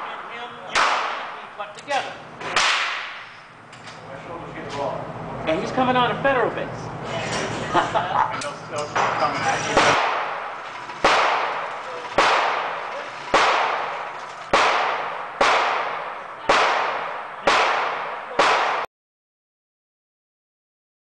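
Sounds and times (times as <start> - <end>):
echoing gunshots: 0.0 - 1.6, 2.4 - 3.7, 9.8 - 18.9.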